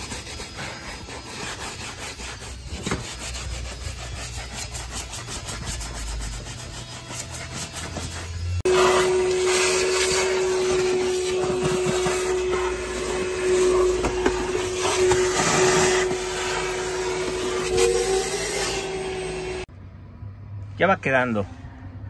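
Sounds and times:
vacuum cleaner whine: 8.1s - 19.7s.

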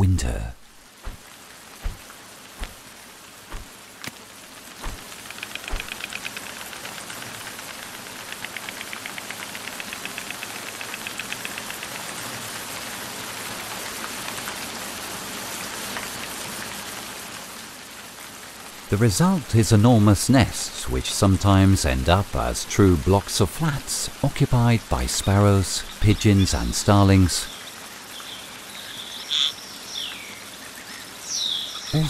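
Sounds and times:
steady rain falling: 0.0s - 32.0s
storks clattering bills: 4.8s - 7.6s.

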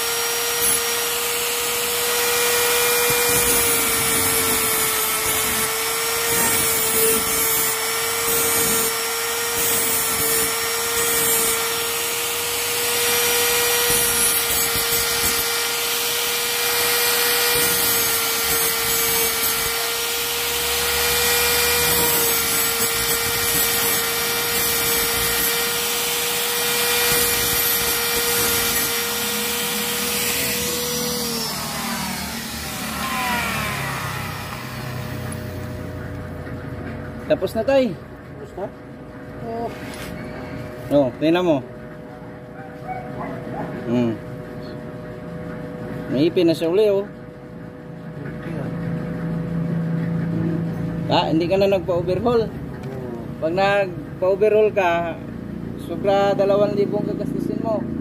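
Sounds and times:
die grinder grinding metal: 0.0s - 36.6s.

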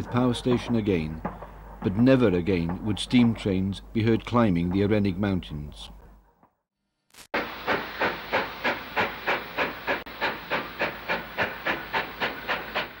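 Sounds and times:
steam locomotive chuffing: 7.4s - 13.0s.

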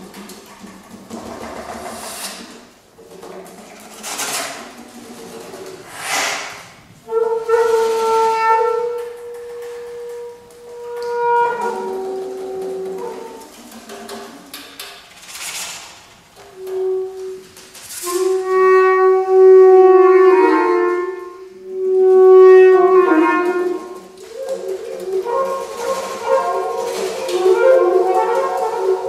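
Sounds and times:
saxophone quartet playing: 7.1s - 13.6s, 18.0s - 29.0s.

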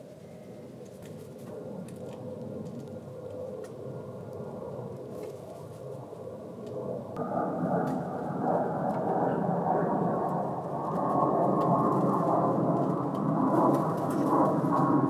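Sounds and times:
airplane rumble: 0.0s - 15.0s.

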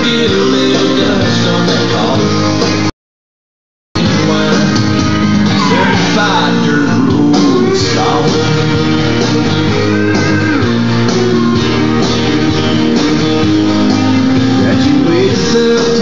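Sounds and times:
instrumental guitar music: 4.5s - 16.0s.

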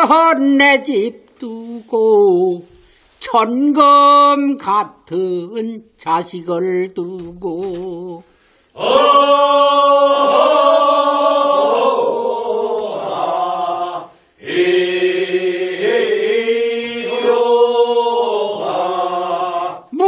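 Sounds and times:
group of singers chanting: 8.7s - 20.0s.

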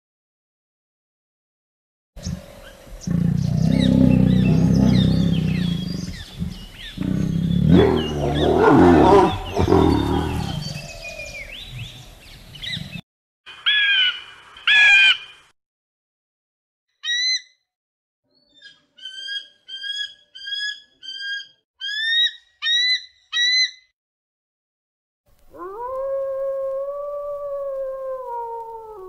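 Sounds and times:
lion roaring: 2.2s - 11.5s
small birds chirping: 2.2s - 13.0s.

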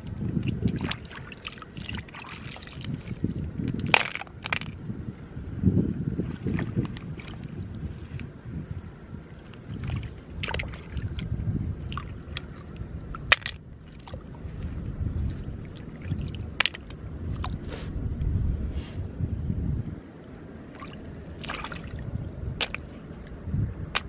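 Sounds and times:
wind on microphone: 0.0s - 24.0s
hands splashing in water: 0.5s - 3.2s, 20.7s - 23.0s.

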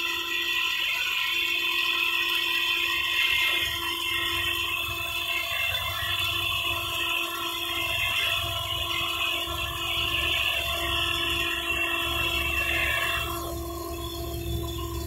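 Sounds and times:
low hum and rumble: 3.4s - 15.0s.

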